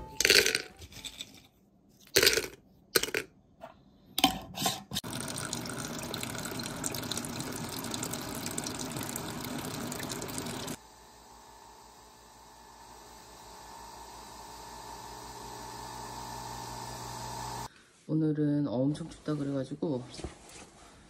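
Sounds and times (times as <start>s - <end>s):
beans clattering into plastic basket: 0.2s - 1.5s, 2.1s - 3.3s
water pouring onto beans: 5.0s - 10.8s.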